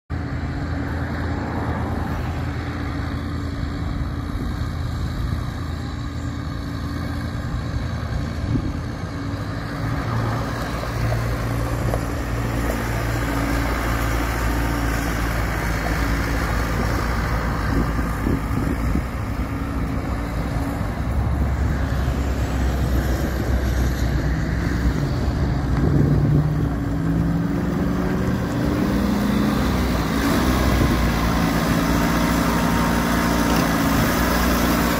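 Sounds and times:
street sweeper engine running: 0:00.1 - 0:34.9
tyres on gravel: 0:09.0 - 0:34.9.

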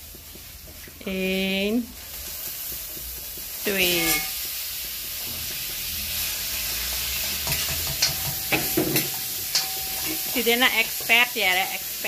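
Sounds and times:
batter sizzling in a frying pan: 0:00.0 - 0:12.0
metal ladle knocking a pan: 0:03.8 - 0:05.9, 0:07.3 - 0:11.2.

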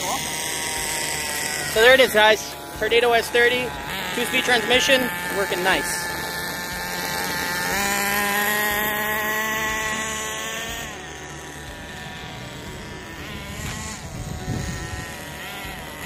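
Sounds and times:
model car engine buzzing: 0:00.0 - 0:16.0.

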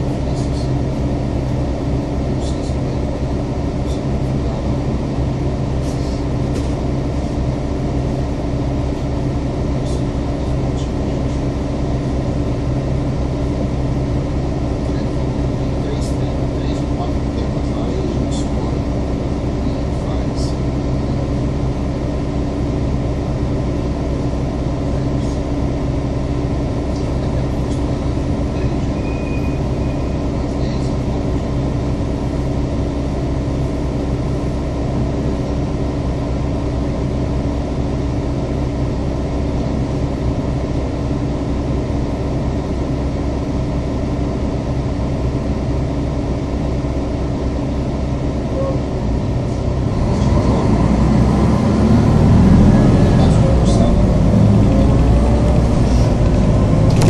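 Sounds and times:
bus engine idling: 0:00.0 - 0:57.0.

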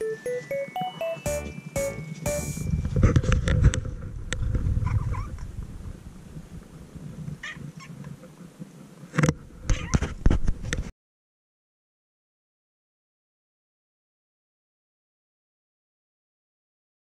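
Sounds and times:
clicks and low rustling: 0:02.6 - 0:05.6.

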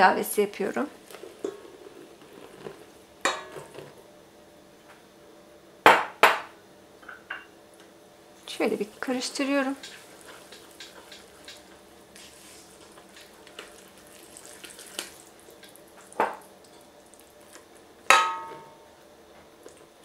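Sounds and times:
spatula scraping batter in pot: 0:01.1 - 0:04.0
spatula clinking against metal pot: 0:18.1 - 0:18.7.

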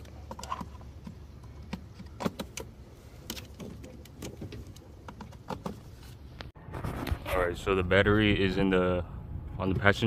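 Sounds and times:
low steady rumble: 0:06.2 - 0:10.0.

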